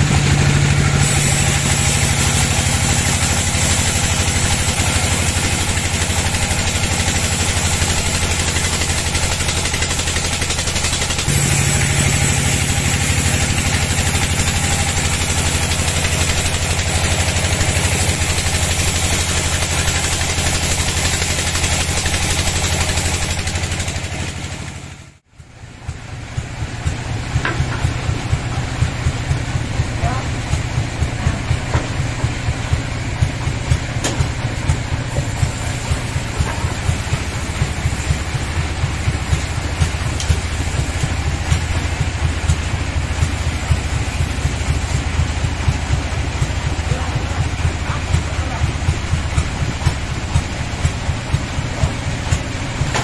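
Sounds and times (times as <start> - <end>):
band saw cutting wood: 0.0 - 25.1, 33.6 - 45.0.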